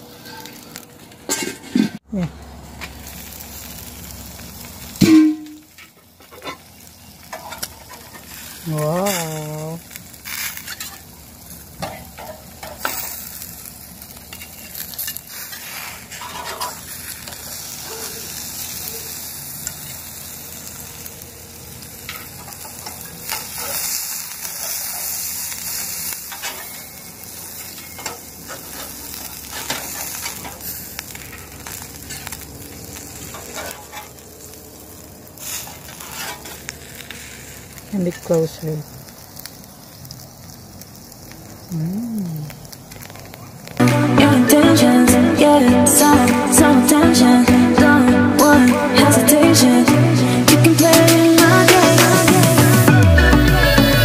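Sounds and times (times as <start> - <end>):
patties sizzling on a grill: 0.0 - 1.5, 2.1 - 54.0
metal spatula scraping grill grate: 0.1 - 2.0, 4.4 - 20.9, 22.0 - 38.3.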